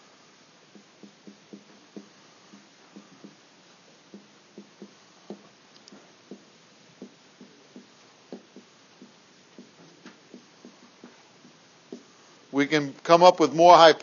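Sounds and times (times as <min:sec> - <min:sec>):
room hiss: 0:00.0 - 0:14.0
writing taps on a board: 0:00.7 - 0:03.4, 0:04.1 - 0:12.1.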